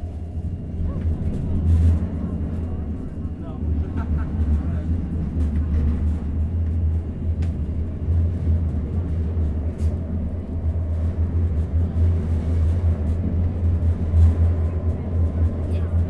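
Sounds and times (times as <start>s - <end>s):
tram running gear rumble: 0.0s - 16.0s.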